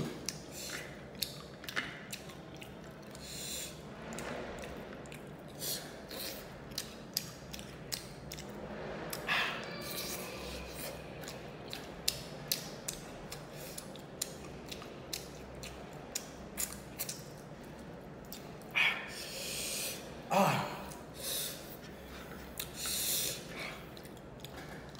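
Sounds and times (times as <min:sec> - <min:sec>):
crunchy chewing: 0:00.1 - 0:09.3, 0:09.9 - 0:18.7
breathy sound: 0:09.2 - 0:11.0.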